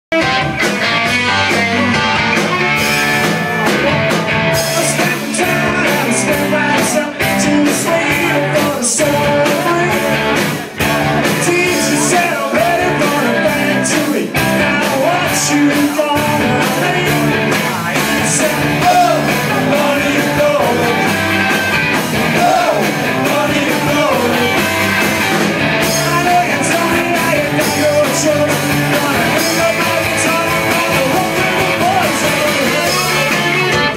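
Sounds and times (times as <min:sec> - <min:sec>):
live rock band playing: 0:00.1 - 0:33.9
person singing into microphone: 0:04.6 - 0:10.2, 0:11.3 - 0:21.1, 0:22.3 - 0:24.6, 0:25.8 - 0:33.9.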